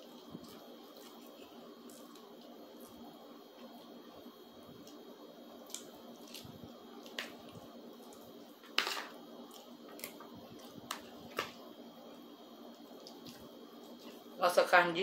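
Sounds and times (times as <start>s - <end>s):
wet chewing: 12.9s - 14.2s.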